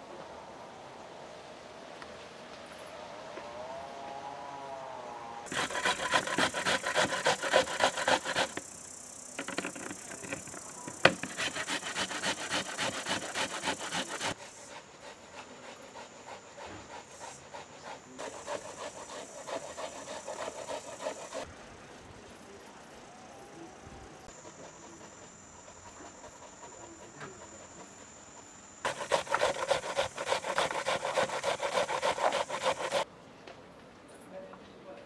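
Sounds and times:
grating on metal grater: 5.5s - 8.7s, 9.4s - 14.4s, 18.2s - 21.4s, 28.9s - 33.0s.

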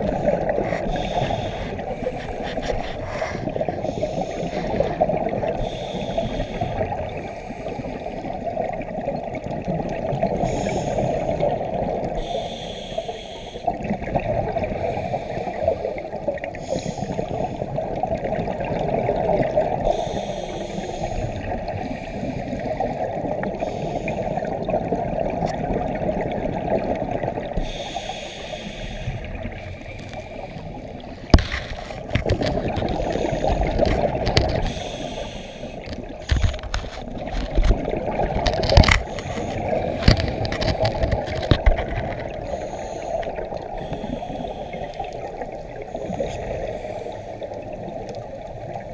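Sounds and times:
sharp knocks and scrapes: 31.3s - 34.8s, 35.9s - 42.3s
regulator bubbles rushing: 35.8s - 42.6s.

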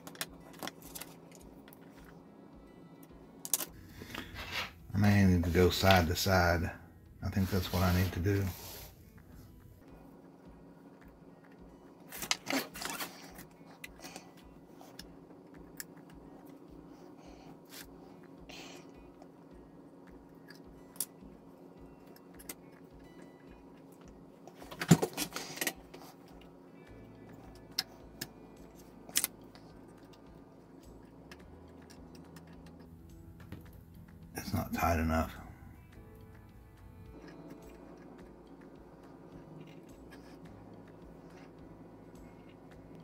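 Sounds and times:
soft background music with beat: 25.4s - 43.0s.

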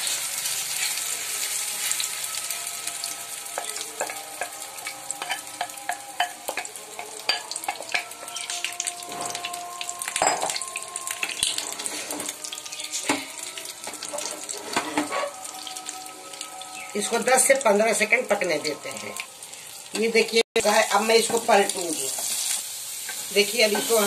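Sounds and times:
egg sizzling in hot oil: 0.0s - 24.0s
spatula scraping a pan: 14.0s - 15.4s.

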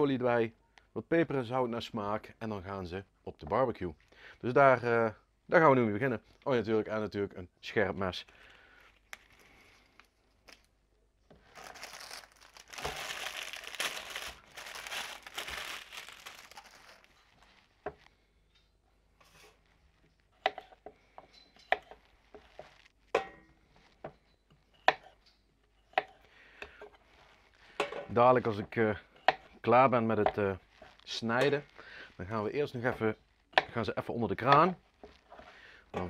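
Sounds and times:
plastic bag crinkling: 8.4s - 10.7s, 11.4s - 17.8s.

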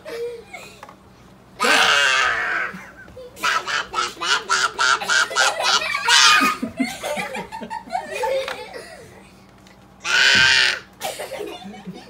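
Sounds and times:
toddler squealing: 1.6s - 2.8s, 10.0s - 10.9s
toddler laughing: 1.6s - 9.0s.

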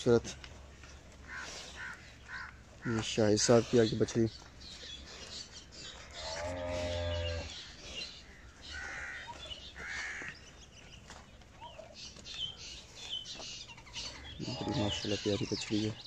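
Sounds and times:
cow mooing: 6.1s - 7.5s, 14.4s - 15.1s.

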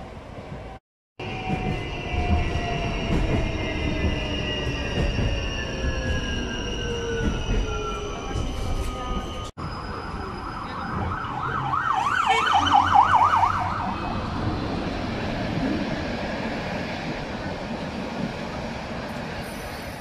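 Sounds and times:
street noise: 0.0s - 20.0s
tram drive whining: 0.0s - 20.0s
warbling siren: 1.2s - 14.4s.

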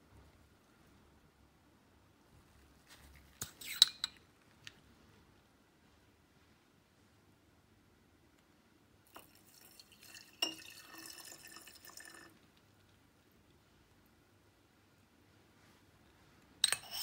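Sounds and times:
glass clinking: 9.1s - 12.3s, 16.6s - 17.0s.

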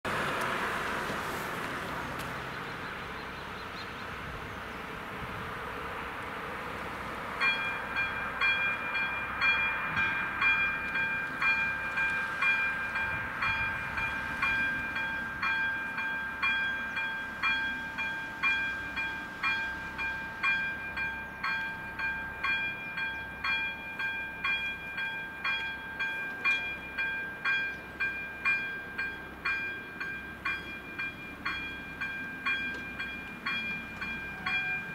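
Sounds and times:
car passing: 0.1s - 3.4s
level crossing warning bell: 7.4s - 34.9s.

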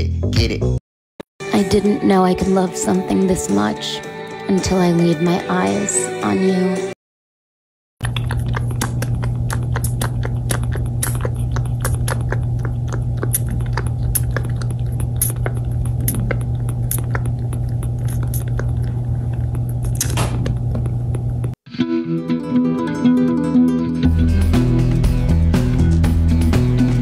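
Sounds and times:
kitten sucking on bottle: 8.0s - 21.6s
steady low hum: 8.0s - 21.6s.

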